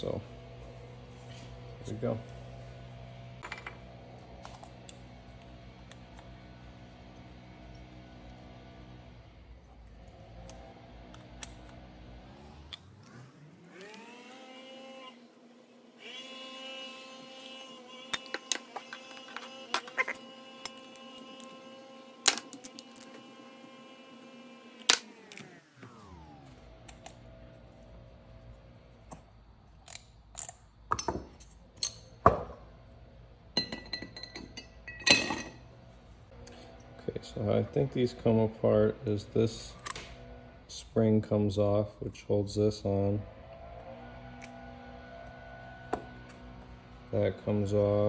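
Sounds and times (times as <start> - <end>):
small parts clicking: 18.1 - 23.2.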